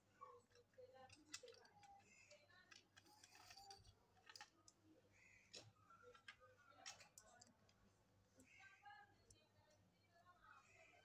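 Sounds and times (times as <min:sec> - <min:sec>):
plastic clicks and rattles: 0:00.5 - 0:04.8.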